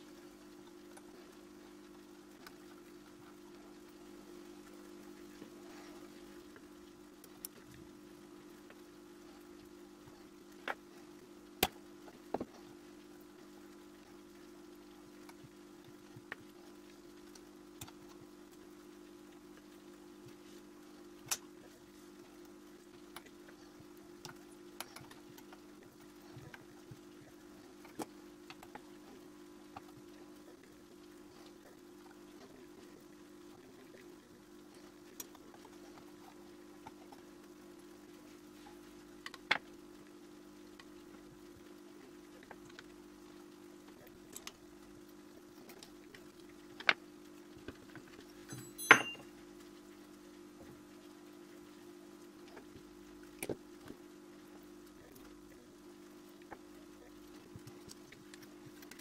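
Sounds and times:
steady low hum: 0.0 - 59.0
metallic clink with ring: 48.5 - 49.3.

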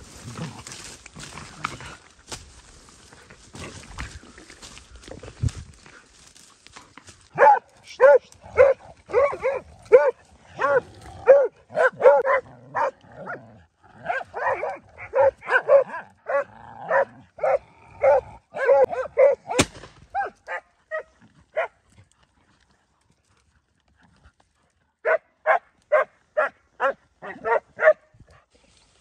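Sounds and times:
dogs barking: 7.3 - 13.4, 14.0 - 21.8, 25.0 - 28.1.

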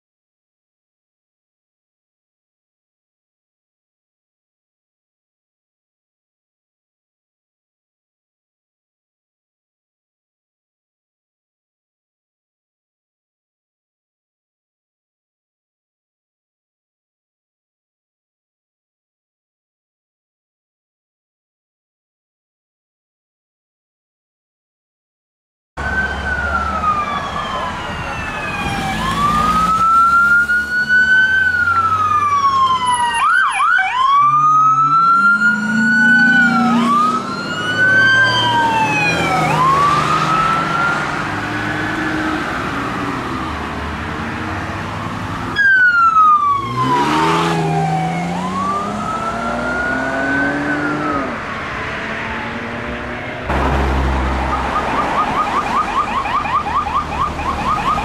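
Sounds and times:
police and ambulance sirens: 25.8 - 58.0.

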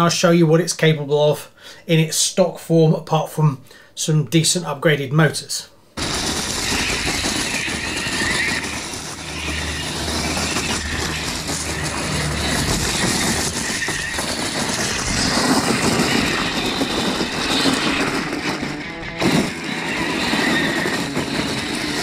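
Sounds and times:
electric motors whining: 6.0 - 22.0
tyres crunching on gravel: 6.0 - 22.0.

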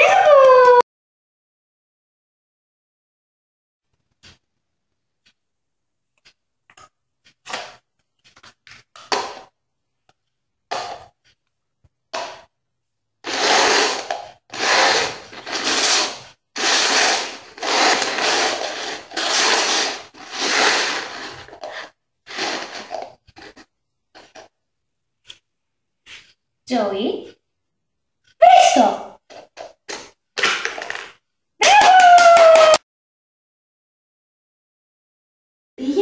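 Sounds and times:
plastic cups scraping on tiles: 6.7 - 9.5, 13.2 - 24.6, 29.2 - 31.2.

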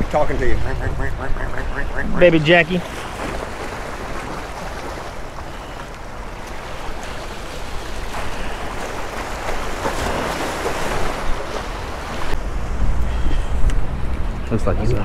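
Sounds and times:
waves splashing against rocks: 0.0 - 12.5.

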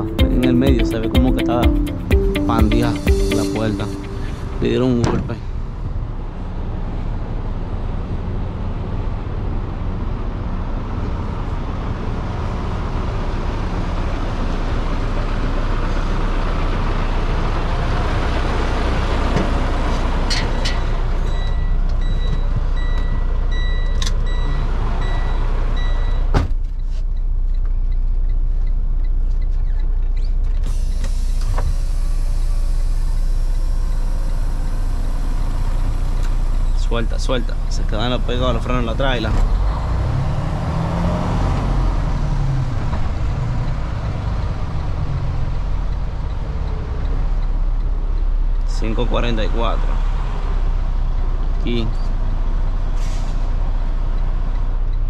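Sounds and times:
high electronic beeping: 0.0 - 5.3
diesel truck engine idling: 0.0 - 26.2, 30.7 - 40.3
air brake hiss: 30.6 - 36.7, 53.0 - 53.5.

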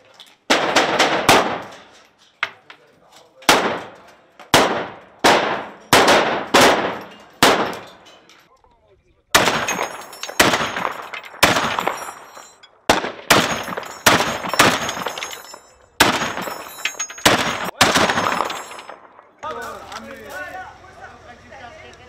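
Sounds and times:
machine gun single shots: 0.5 - 1.7, 3.5 - 7.8, 9.4 - 12.2, 12.9 - 15.3, 16.0 - 19.1
gunshot echo: 3.5 - 7.8, 9.4 - 12.2, 12.8 - 15.1.

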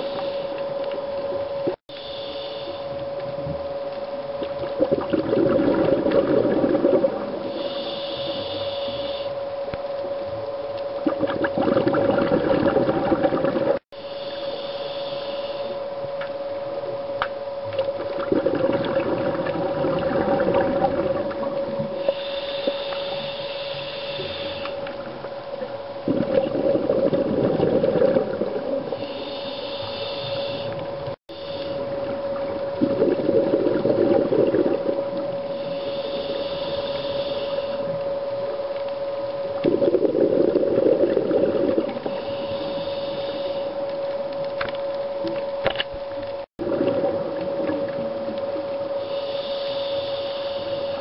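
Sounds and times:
steady hum: 0.0 - 51.0
hissing regulator inhalation: 1.9 - 3.0, 7.4 - 9.4, 14.0 - 15.8, 21.9 - 25.1, 28.9 - 32.0, 35.4 - 38.0, 42.0 - 43.8, 49.0 - 51.0
bubbling exhalations underwater: 4.6 - 7.4, 11.0 - 13.8, 18.0 - 22.0, 26.0 - 28.9, 32.6 - 35.1, 39.6 - 42.1, 46.6 - 48.3.

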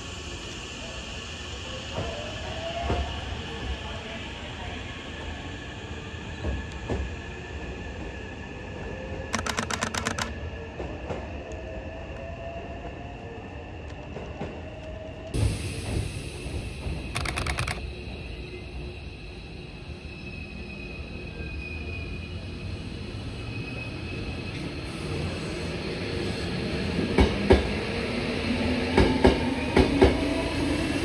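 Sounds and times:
train wheels clicking: 9.3 - 10.4, 16.8 - 17.8.

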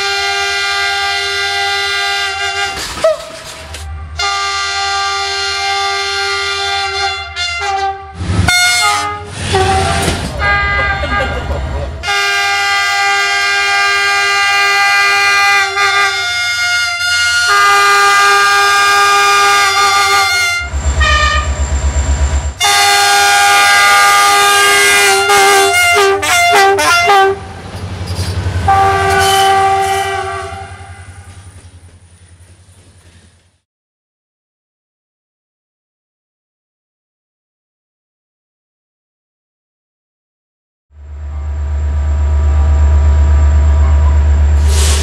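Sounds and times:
short train horn toots: 0.0 - 21.6, 22.6 - 27.4, 28.7 - 31.5
train horn blasts: 0.0 - 21.6, 22.6 - 27.6, 28.6 - 31.5, 41.2 - 44.4
passing train rumble: 0.0 - 33.6, 41.0 - 45.0.

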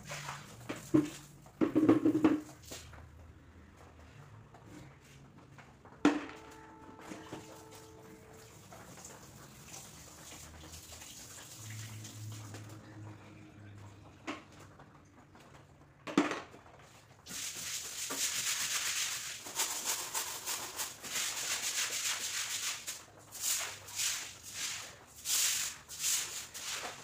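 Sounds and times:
scrubbing wet floor: 0.0 - 3.0, 7.3 - 12.8, 17.2 - 27.0.

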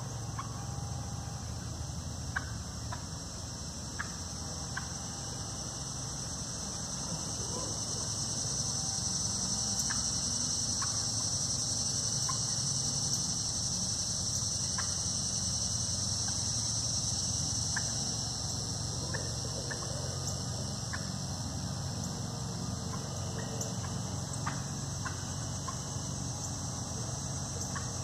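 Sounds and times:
crickets and insects chorus: 0.0 - 28.0
turkeys clucking: 3.9 - 4.9, 7.0 - 8.1, 18.8 - 21.2, 22.8 - 25.8.

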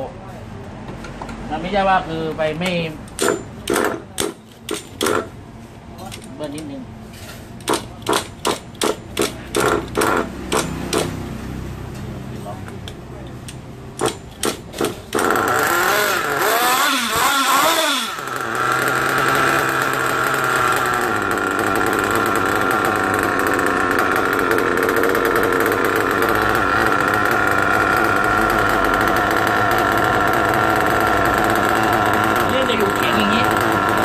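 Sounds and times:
small nitro engine revving: 14.8 - 34.0.

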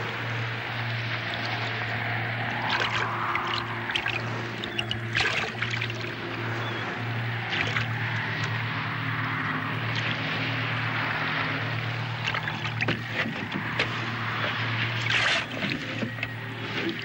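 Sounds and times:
steady low hum: 0.0 - 17.0
water splashing against a boat: 0.0 - 17.0.

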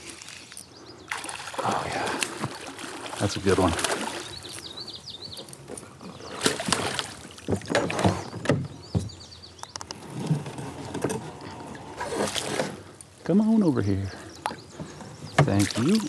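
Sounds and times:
fish thrashing and splashing: 1.1 - 4.6, 6.3 - 8.2, 12.0 - 12.9, 15.5 - 16.0.

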